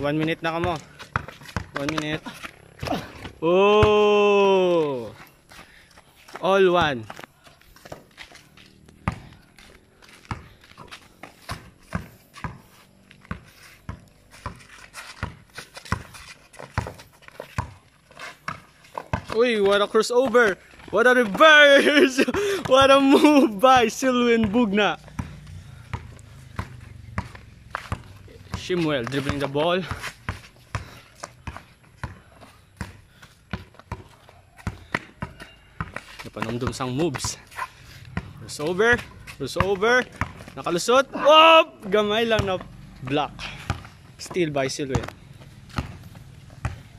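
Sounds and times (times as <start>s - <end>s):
basketball bouncing on concrete: 0.0s - 41.0s, 41.8s - 46.9s
footsteps scuffing: 4.8s - 24.7s, 26.6s - 31.7s.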